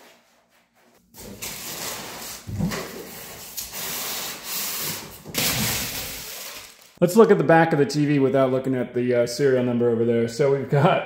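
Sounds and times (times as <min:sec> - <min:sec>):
foam and cardboard scraping: 0:00.0 - 0:06.7.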